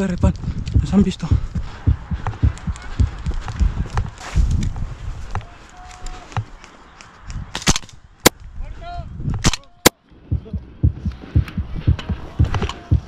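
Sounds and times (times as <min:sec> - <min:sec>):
footsteps on rough ground: 0:00.0 - 0:07.5.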